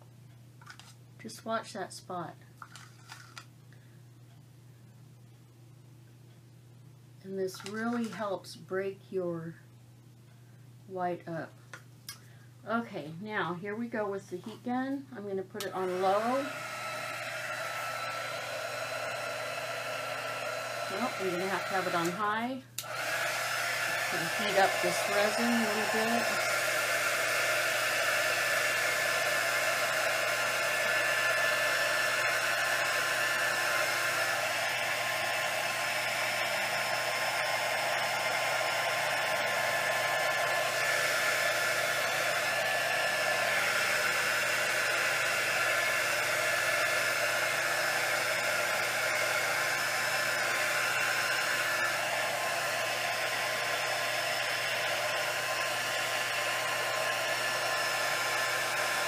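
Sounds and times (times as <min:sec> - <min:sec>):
heat gun fan blowing with whine: 0:15.3 - 0:59.0.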